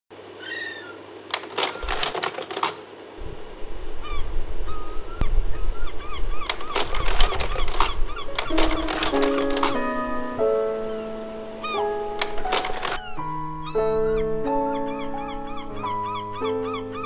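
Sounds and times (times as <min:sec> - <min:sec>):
bird-like calls: 0:00.3 - 0:02.0, 0:04.0 - 0:08.8, 0:10.8 - 0:17.0
rapid sharp clicks: 0:01.3 - 0:02.9, 0:06.5 - 0:09.8, 0:12.2 - 0:13.0.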